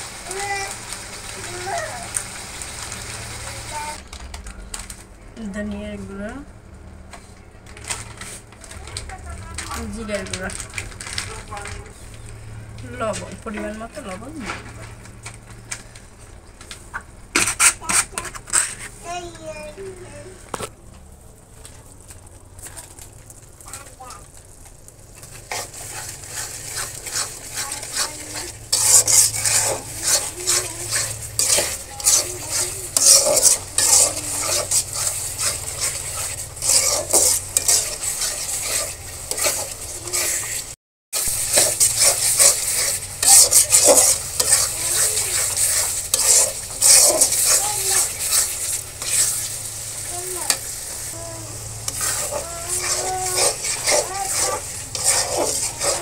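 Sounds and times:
food sizzling in hot oil: 0.0s - 4.0s, 21.1s - 56.0s
metal spoon scraping a pan: 17.4s - 19.1s, 25.2s - 56.0s.

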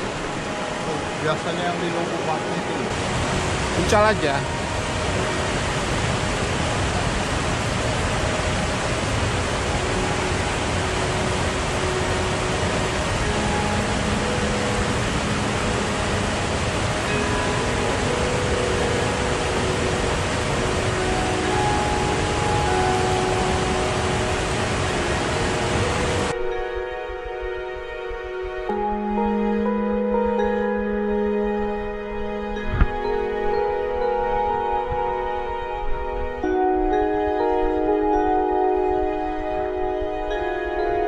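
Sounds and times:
stream rushing over boulders: 0.0s - 26.5s
soft ambient music: 0.0s - 41.0s.

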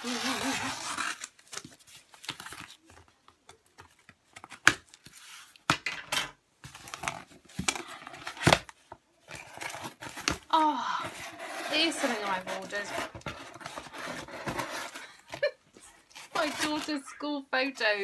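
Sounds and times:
scissors cutting packaging: 0.0s - 2.8s, 9.3s - 17.1s
paper rustling and tearing: 0.0s - 3.0s, 9.3s - 17.3s.

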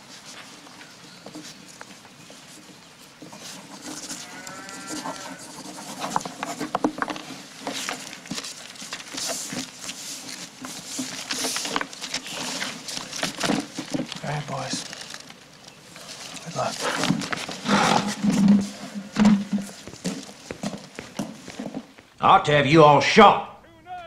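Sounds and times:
cow lowing: 3.7s - 6.4s, 16.8s - 20.4s.

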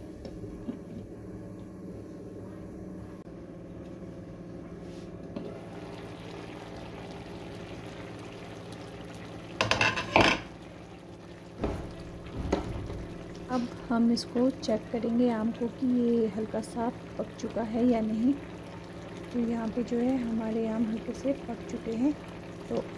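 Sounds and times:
low hum: 0.0s - 9.6s
ladle scraping a pan: 9.6s - 10.5s.

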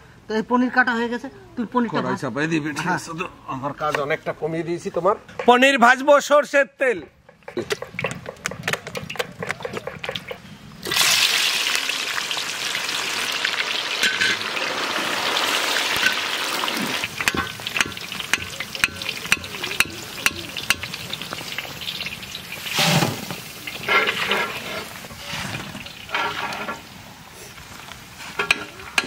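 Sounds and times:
oil spitting crackles: 7.2s - 29.0s
oil sizzling in a wok: 9.8s - 29.0s.

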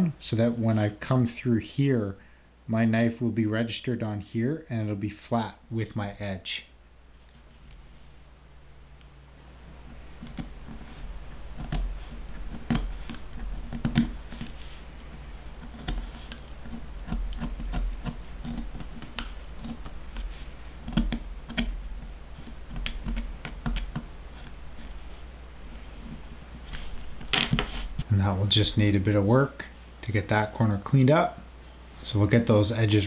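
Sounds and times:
knife cutting leather clicks and scrapes: 10.2s - 21.8s.

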